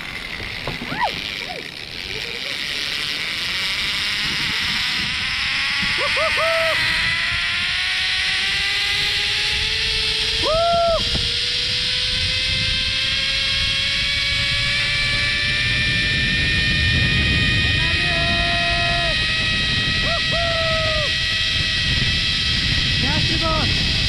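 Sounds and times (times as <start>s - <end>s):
rushing wind: 0.0s - 24.0s
zipline pulley whine on cable: 0.0s - 24.0s
short high whoops: 10.4s - 11.2s.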